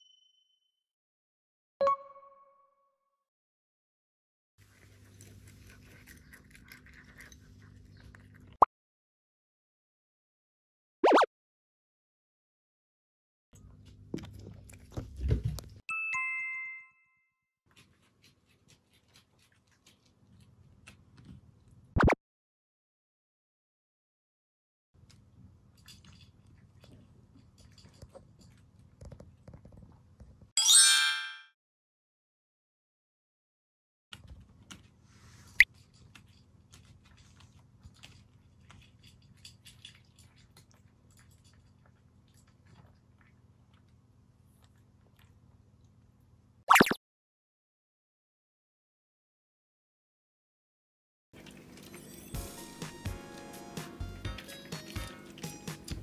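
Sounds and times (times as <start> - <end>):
cats crunching dry kibble: 4.6 - 8.6, 17.7 - 21.8, 25.0 - 30.1, 34.2 - 45.6
two-note ding-dong chime: 15.9 - 17.2, 30.6 - 31.5.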